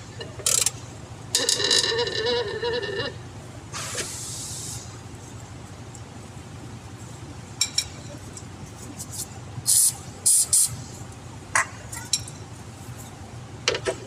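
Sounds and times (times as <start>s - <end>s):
hissing spray spurts: 3.7s - 5.0s, 9.0s - 10.9s.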